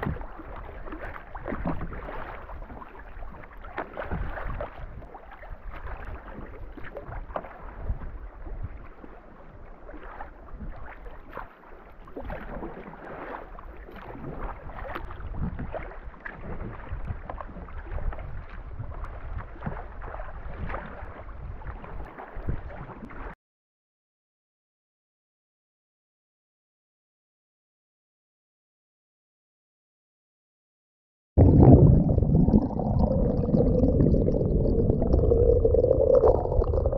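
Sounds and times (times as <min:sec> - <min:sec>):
paddle blades splashing: 0:00.0 - 0:23.4
small waves slapping a hull: 0:00.0 - 0:23.4
wind rumbling on microphone: 0:04.0 - 0:11.0, 0:14.0 - 0:23.3, 0:31.4 - 0:36.9.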